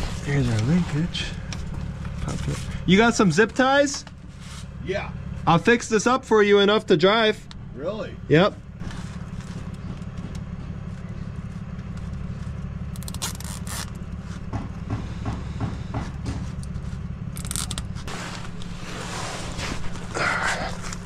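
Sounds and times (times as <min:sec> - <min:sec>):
low engine hum: 0:00.0 - 0:21.0
rustling and scraping on cardboard: 0:04.3 - 0:04.7, 0:17.9 - 0:20.2
zip tie zipping rasp: 0:12.9 - 0:14.0.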